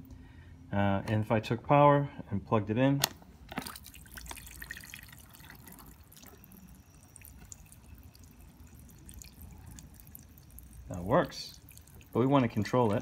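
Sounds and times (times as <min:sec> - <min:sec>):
water spattering into plastic basin: 0:03.5 - 0:06.3.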